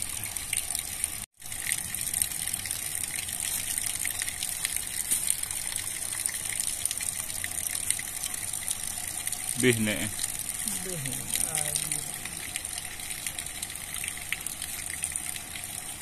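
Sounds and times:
water gushing at a dam: 0:00.0 - 0:16.0.

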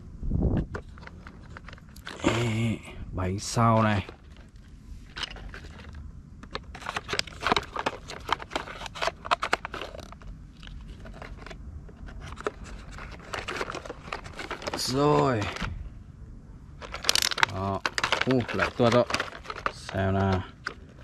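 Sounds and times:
plastic toy wheels clicking: 0:16.9 - 0:21.0.

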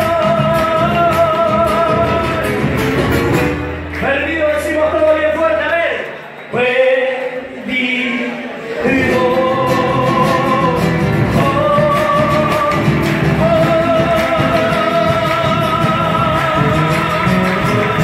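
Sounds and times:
acoustic guitars strumming: 0:00.0 - 0:05.6, 0:06.2 - 0:18.0
person singing long notes: 0:07.8 - 0:18.0.

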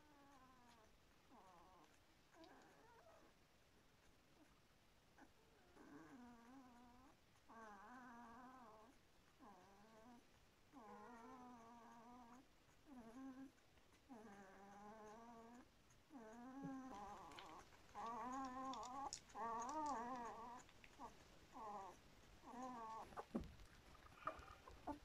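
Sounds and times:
puppies whining: 0:05.2 - 0:25.0
faint clicks: 0:11.6 - 0:25.0.

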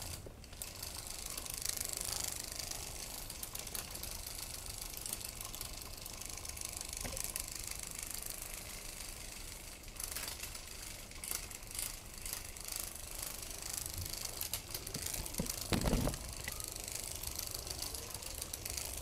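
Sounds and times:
toy motor ratcheting whir: 0:00.0 - 0:19.0
dull thump: 0:15.4 - 0:16.2.

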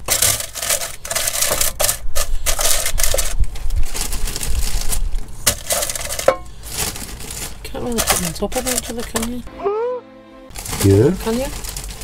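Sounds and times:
chips clattering into basket: 0:00.0 - 0:07.0
plastic bag crinkling: 0:00.0 - 0:09.4, 0:10.5 - 0:12.0.

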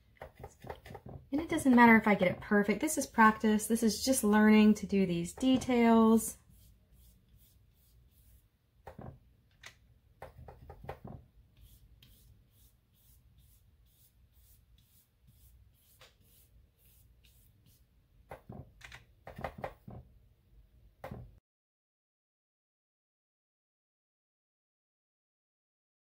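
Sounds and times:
brush brushing on paper: 0:05.7 - 0:08.5, 0:10.5 - 0:17.9
brush tapping in paint pan: 0:10.2 - 0:11.2.

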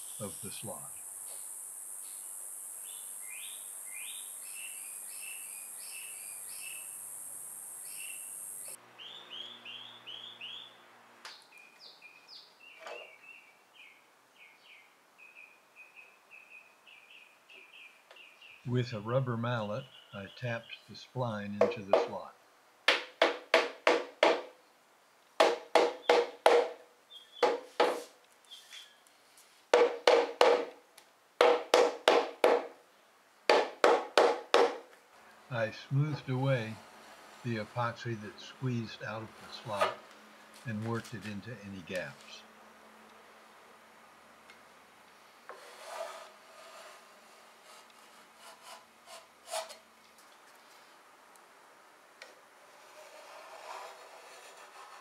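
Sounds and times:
rubber mallet knocking wood: 0:22.9 - 0:24.5, 0:25.4 - 0:26.8, 0:27.4 - 0:28.0, 0:29.8 - 0:30.8, 0:31.4 - 0:32.8, 0:33.5 - 0:34.9
putty knife scraping wood: 0:45.5 - 0:49.8, 0:52.7 - 0:55.0.

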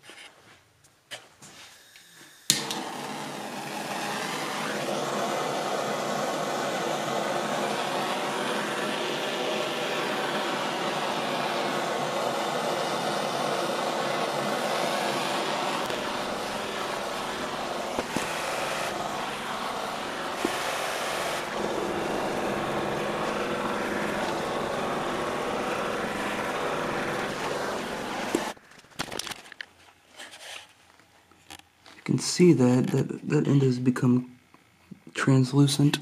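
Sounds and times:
propane torch hissing: 0:02.4 - 0:28.6.

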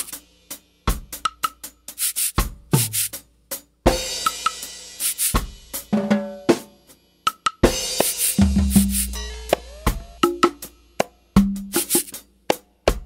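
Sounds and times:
drum loop: 0:00.9 - 0:03.2, 0:04.3 - 0:06.1, 0:07.3 - 0:12.2.

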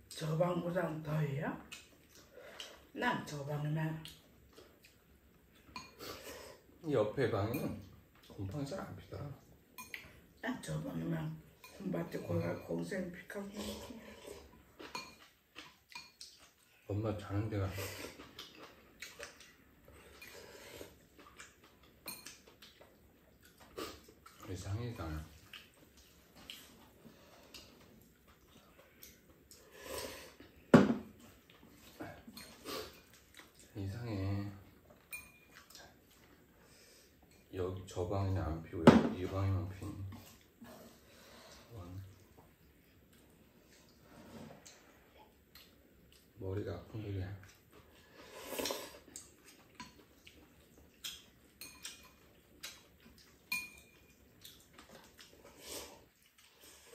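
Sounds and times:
soft eating sounds: 0:00.0 - 0:56.9
noodles being slurped: 0:48.0 - 0:49.6.

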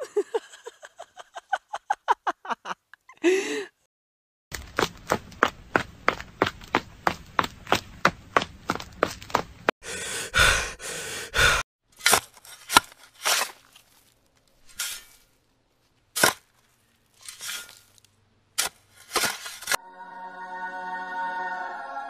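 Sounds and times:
cutlery scraping dry soil: 0:12.0 - 0:19.8
music: 0:19.8 - 0:22.0.

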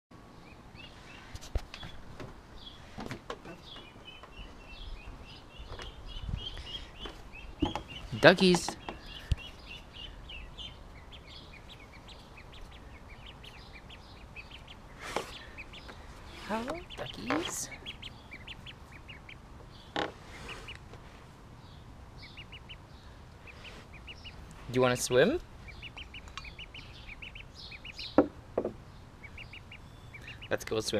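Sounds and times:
ducklings peeping: 0:00.2 - 0:30.9
sharp knocks: 0:28.2 - 0:28.8.

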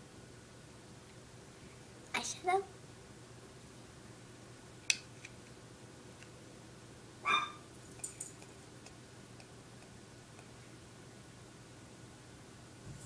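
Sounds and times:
high-pitched yelp: 0:07.3 - 0:07.6.

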